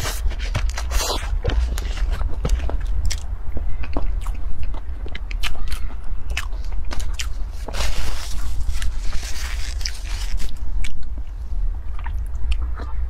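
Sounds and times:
low hum: 0.0 - 13.0
mouth chewing clicks and smacks: 3.0 - 7.4, 10.8 - 11.2, 11.9 - 13.0
crackling rustle: 6.5 - 11.2.

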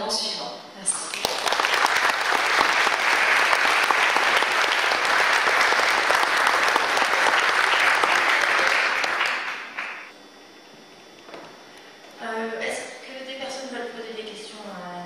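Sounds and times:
audience applauding: 1.1 - 10.1.

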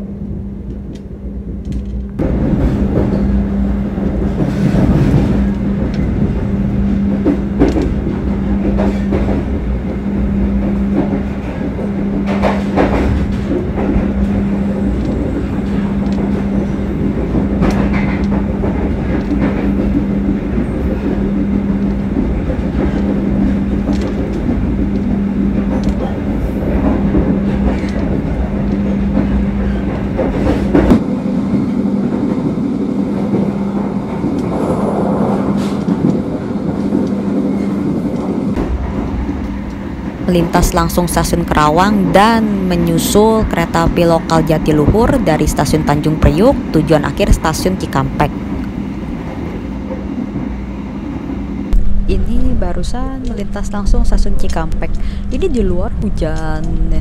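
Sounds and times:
train wheels rumbling on rail: 0.0 - 57.0
steady hum: 37.0 - 57.0.

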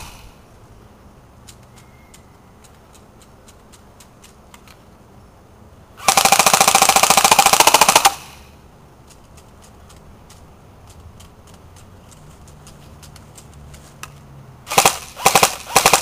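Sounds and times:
airsoft gun firing full-auto: 6.0 - 8.4, 14.7 - 16.0.

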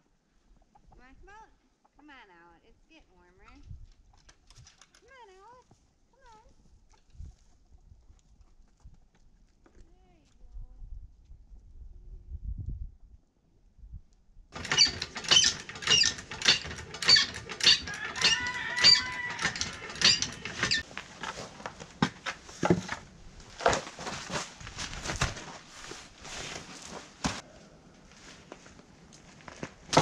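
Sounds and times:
short squeak: 14.6 - 20.8
tools and parts knocking: 14.6 - 20.8
floor jack pumping clicks: 14.6 - 21.4.

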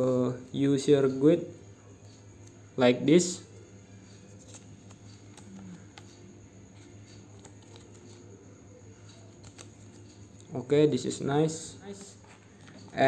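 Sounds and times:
light paper clicks: 9.3 - 10.0.

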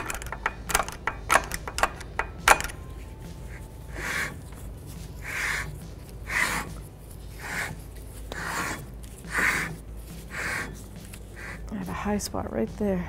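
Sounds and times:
screwdriver rasping scrapes: 3.4 - 11.7.

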